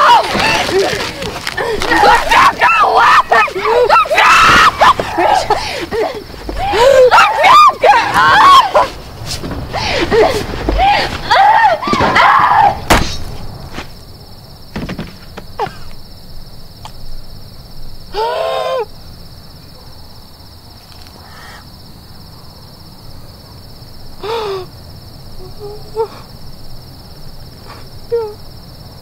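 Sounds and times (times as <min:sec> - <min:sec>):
woman crying through a gag: 0:00.0 - 0:08.9
crickets chirring: 0:00.0 - 0:29.0.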